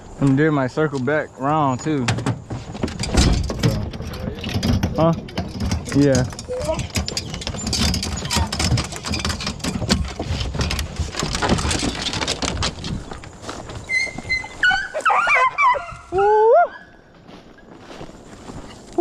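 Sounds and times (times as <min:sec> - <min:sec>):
metal latch and door clatter: 0:02.0 - 0:13.1
dogs whining and yelping: 0:13.8 - 0:17.0.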